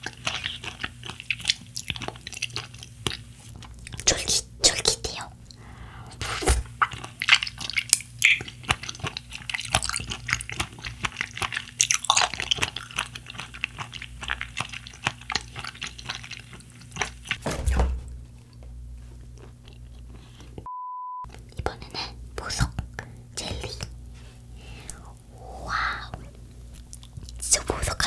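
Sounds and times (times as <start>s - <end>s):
chewing gummy candy: 0.0s - 5.6s, 6.2s - 17.4s, 19.2s - 20.7s, 24.6s - 28.0s.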